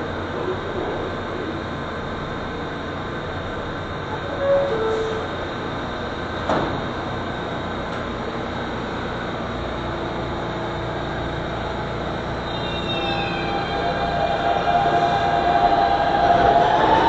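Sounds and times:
subway train humming: 0:00.0 - 0:17.0
traction motors whining: 0:12.3 - 0:17.0.

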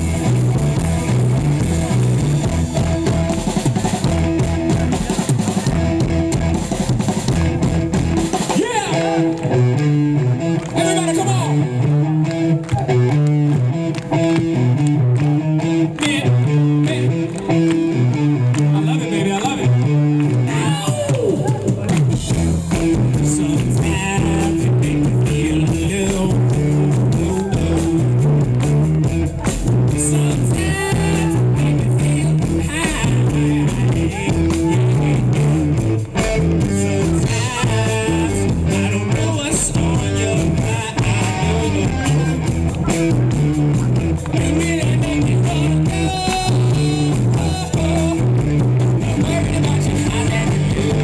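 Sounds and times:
bass guitar: 0:00.0 - 0:51.0
drum kit: 0:00.0 - 0:51.0
electric guitar: 0:00.0 - 0:51.0
lead vocal singing: 0:20.4 - 0:28.2, 0:29.9 - 0:35.6, 0:36.4 - 0:43.0, 0:44.2 - 0:51.0.

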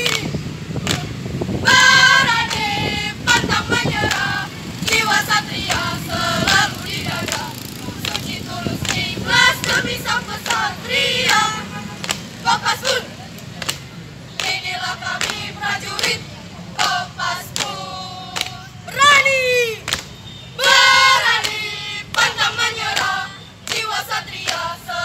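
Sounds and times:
sharp hand claps: 0:00.0 - 0:01.1, 0:07.3 - 0:12.3, 0:13.4 - 0:16.2, 0:16.8 - 0:18.7, 0:19.8 - 0:24.7.

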